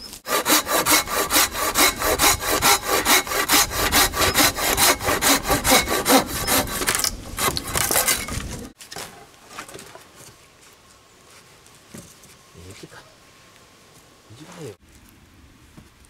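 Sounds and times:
hand saw cutting wood: 0.2 - 8.6.

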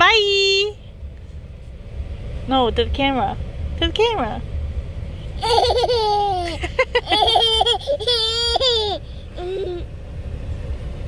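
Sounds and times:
toddler laughing: 5.4 - 9.9
toddler vocal sounds: 7.6 - 9.9.

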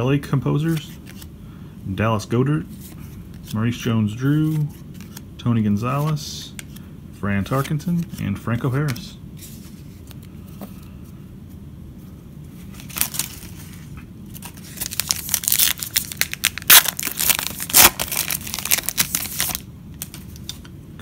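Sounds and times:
wrapper crinkling and tearing: 12.7 - 20.2.

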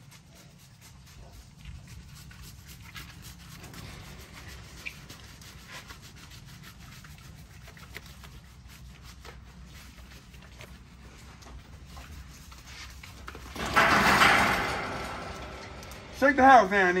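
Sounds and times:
hands rubbing soapy dog fur: 0.0 - 13.5.

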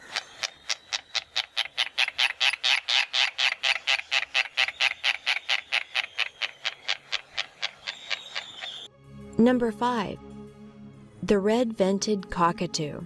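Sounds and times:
terns chattering: 0.0 - 8.9.

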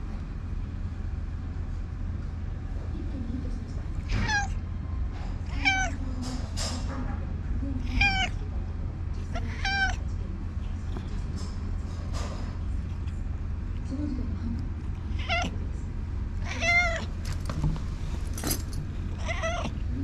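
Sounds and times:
cat meowing: 4.0 - 4.6, 5.4 - 6.0, 7.8 - 8.4, 9.3 - 10.0, 15.1 - 15.5, 16.4 - 17.1, 19.1 - 19.8.

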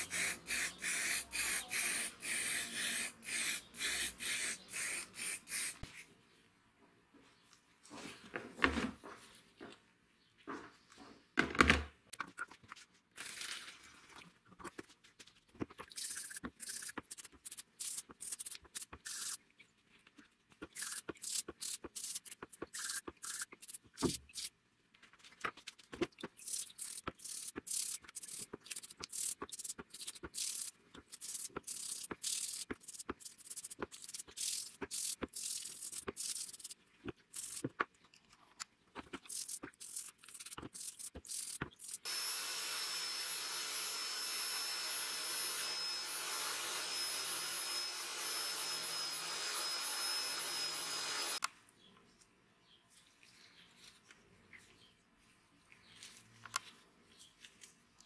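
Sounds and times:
toothbrush scrubbing wet parts: 12.2 - 24.6, 25.5 - 42.1.

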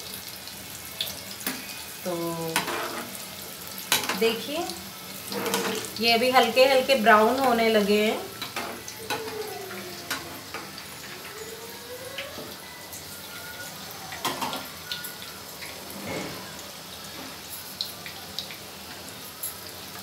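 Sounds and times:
food deep-frying in hot oil: 0.0 - 20.0
metal spoon scraping a pan: 1.4 - 3.2, 5.2 - 6.0, 15.9 - 16.6.

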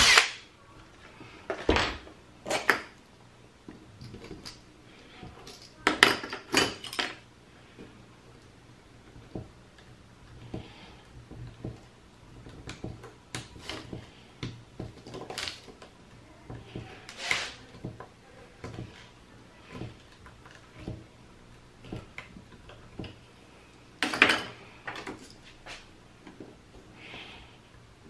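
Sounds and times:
metal tool scraping a screw: 17.0 - 17.7.

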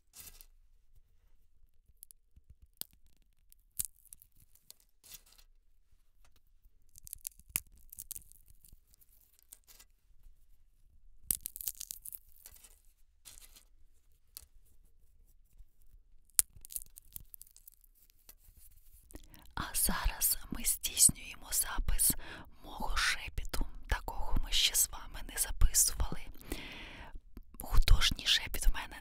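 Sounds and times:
sunflower seed husks cracking: 11.3 - 12.8, 16.4 - 17.8.

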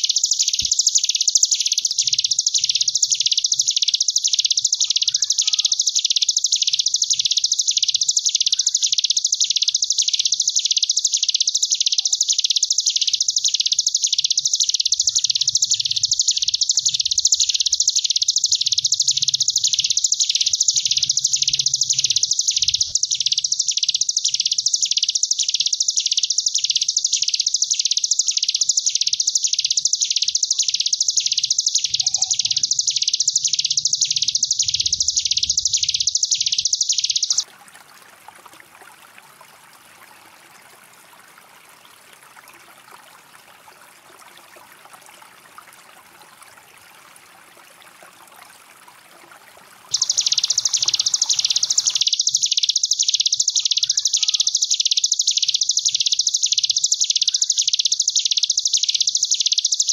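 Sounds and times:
bird buzzing trill: 49.9 - 59.8.

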